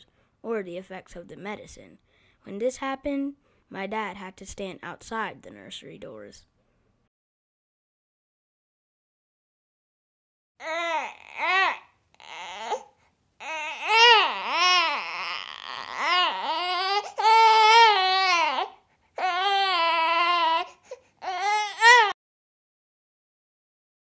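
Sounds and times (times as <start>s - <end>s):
newborn baby crying: 10.6s - 22.2s.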